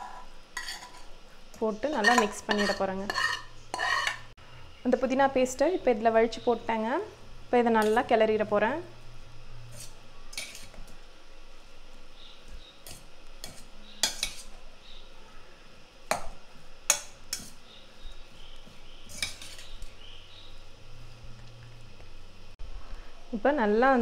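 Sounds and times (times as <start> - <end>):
metal spoon scraping pot: 0.0 - 4.3, 9.6 - 10.8, 12.8 - 14.6, 16.9 - 17.6, 19.0 - 19.9.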